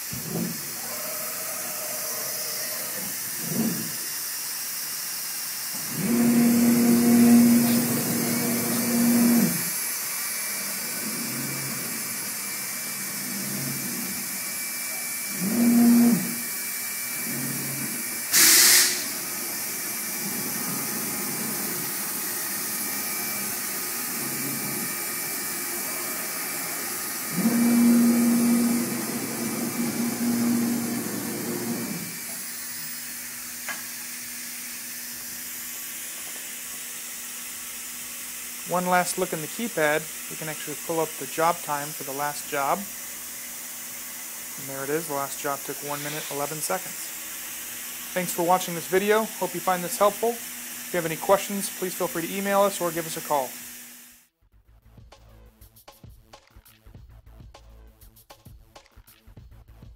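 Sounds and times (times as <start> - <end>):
gantry motors humming: 0.0 - 4.2, 5.8 - 35.0
router spindle hissing: 0.0 - 54.1
short loud hiss: 18.3 - 19.1.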